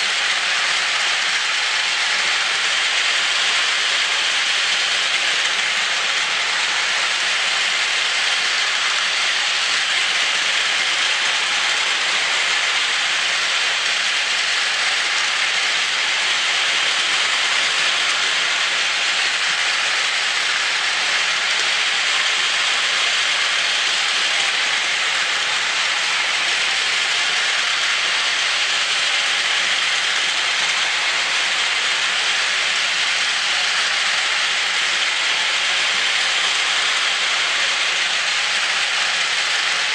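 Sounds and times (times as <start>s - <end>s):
toy trains running on plastic track: 0.0s - 39.9s.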